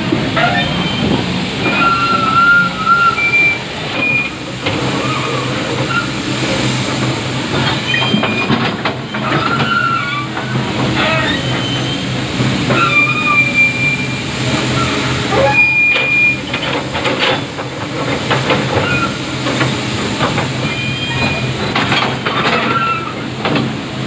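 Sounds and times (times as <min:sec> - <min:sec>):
excavator diesel engine: 0:00.0 - 0:24.0
high-pitched squeals: 0:00.3 - 0:17.6, 0:18.5 - 0:20.0.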